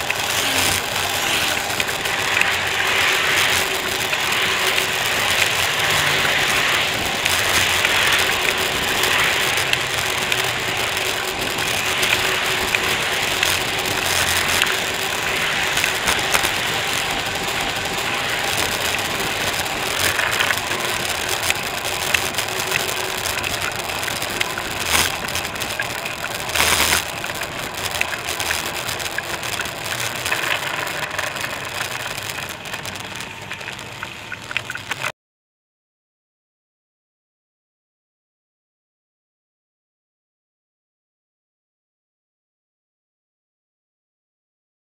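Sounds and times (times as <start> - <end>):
bicycle rattling over paving: 0.0 - 35.1
passing car traffic: 0.0 - 35.1.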